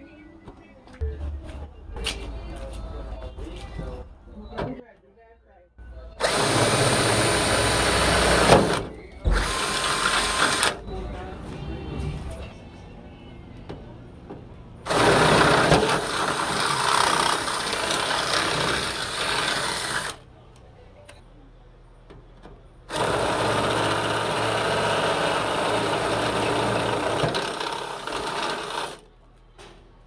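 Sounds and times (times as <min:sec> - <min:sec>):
power drill drilling sheet metal: 0:06.2 - 0:10.8, 0:14.9 - 0:20.2, 0:22.9 - 0:29.0.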